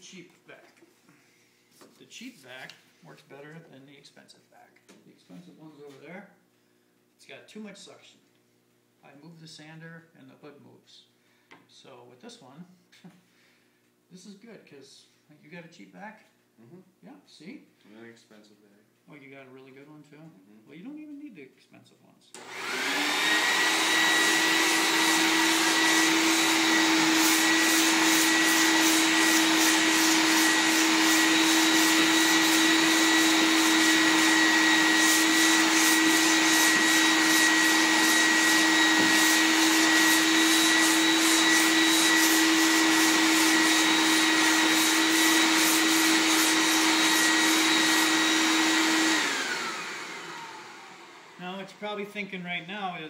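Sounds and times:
shop vacuum running: 0:22.3 - 0:53.0.

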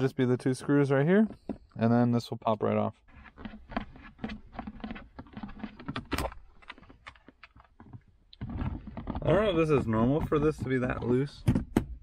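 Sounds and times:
plastic clicks and rattles: 0:05.2 - 0:09.4.

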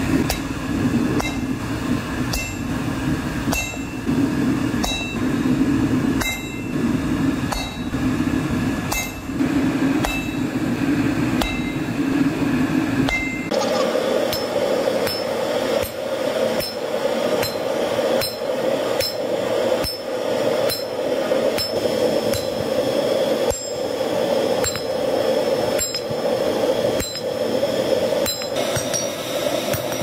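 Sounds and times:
hammer striking iron on anvil: 0:00.0 - 0:00.6, 0:01.2 - 0:01.6, 0:02.3 - 0:02.7, 0:03.5 - 0:04.1, 0:04.8 - 0:05.3, 0:06.2 - 0:06.8, 0:07.5 - 0:08.0, 0:08.9 - 0:09.4, 0:10.0 - 0:10.6, 0:11.4 - 0:11.9, 0:13.0 - 0:22.8, 0:23.4 - 0:23.9, 0:24.6 - 0:25.0, 0:25.7 - 0:26.3, 0:27.0 - 0:27.4, 0:28.2 - 0:30.0
steady rushing noise: 0:00.0 - 0:30.0.

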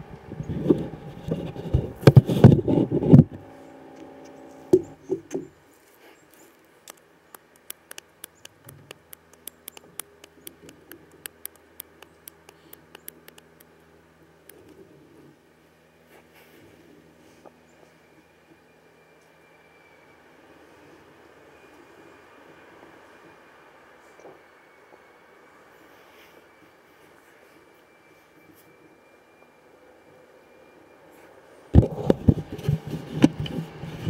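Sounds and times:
sharp quick clicks: 0:06.8 - 0:13.7.

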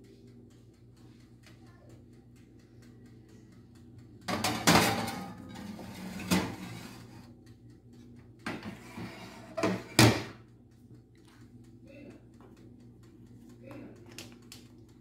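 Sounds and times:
oven door shutting: 0:04.3 - 0:07.1, 0:08.5 - 0:10.4
glass dish scraping on wire rack: 0:04.7 - 0:07.2, 0:08.6 - 0:10.1.

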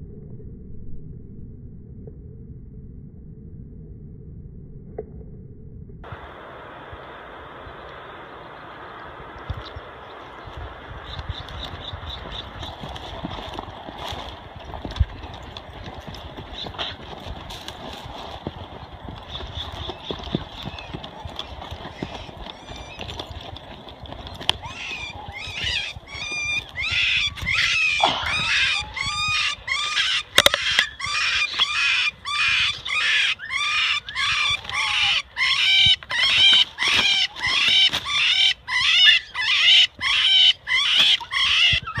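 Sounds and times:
animal screaming shrill calls: 0:24.6 - 0:42.0.

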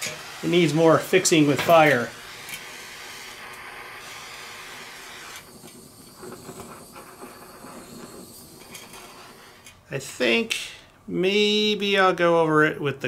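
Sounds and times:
gas torch flame hissing: 0:00.0 - 0:10.4.

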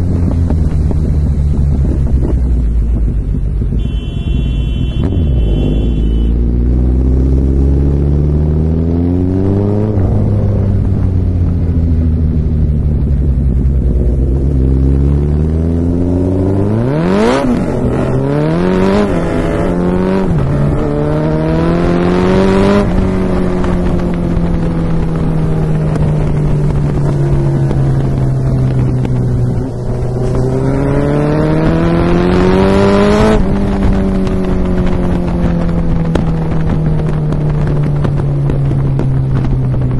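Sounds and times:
motorcycle engine accelerating: 0:00.0 - 0:39.9
exhaust pops and crackles: 0:22.8 - 0:30.4, 0:33.0 - 0:39.9.

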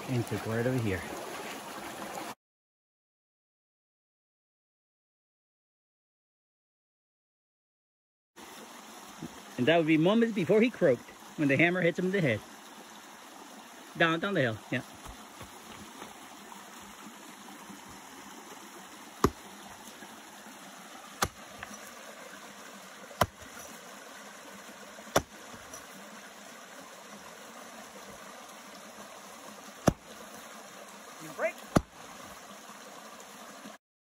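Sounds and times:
creek running: 0:00.0 - 0:02.4, 0:08.4 - 0:33.8
mattock striking soil: 0:19.1 - 0:20.0, 0:21.1 - 0:22.0, 0:23.1 - 0:23.8, 0:25.0 - 0:25.9, 0:29.8 - 0:30.4, 0:31.6 - 0:32.2.

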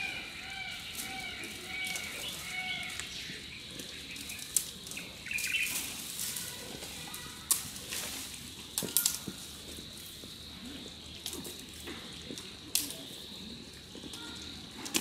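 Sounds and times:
birds chirping: 0:00.0 - 0:07.6
bamboo stalks snapping: 0:00.9 - 0:03.2, 0:03.8 - 0:09.5, 0:11.2 - 0:13.1, 0:14.1 - 0:15.0.

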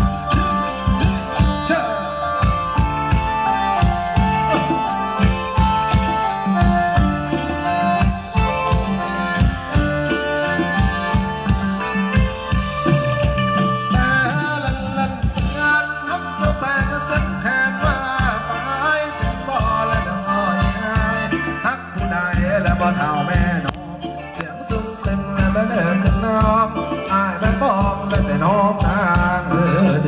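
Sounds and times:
wavering melody line: 0:00.0 - 0:23.7
held keyboard chords: 0:00.0 - 0:30.0
steady drum beat: 0:00.0 - 0:30.0.

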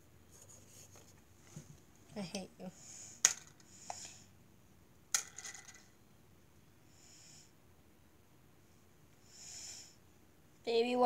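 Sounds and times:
soft breaths through the nose: 0:02.7 - 0:04.4, 0:06.8 - 0:07.6, 0:09.2 - 0:10.1.

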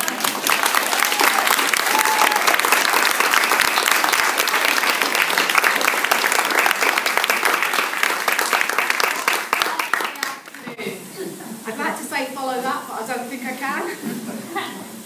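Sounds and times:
crowd applauding: 0:00.0 - 0:10.7.

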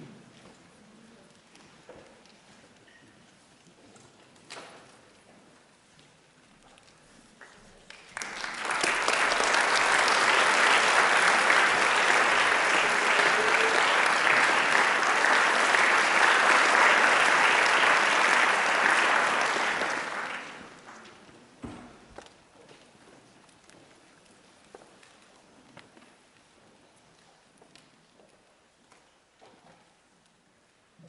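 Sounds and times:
audience applauding: 0:07.9 - 0:21.2.

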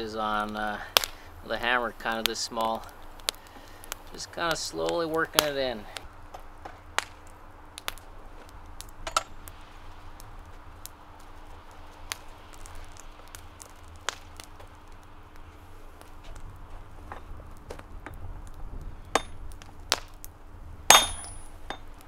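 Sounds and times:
faint steady hum: 0:00.0 - 0:22.0
tongs clinking in forge coals: 0:08.9 - 0:09.5, 0:19.1 - 0:19.7, 0:20.9 - 0:22.0.

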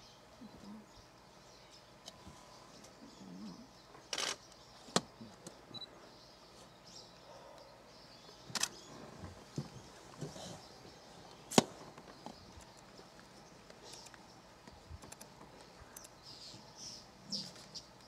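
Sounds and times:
faint bird chirps: 0:00.0 - 0:18.0
camera shutters clicking: 0:04.1 - 0:04.4.

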